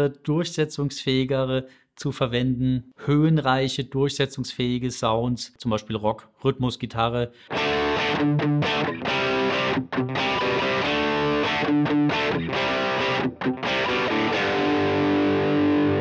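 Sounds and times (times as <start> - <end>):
electric guitar rock chords: 7.4 - 16.0.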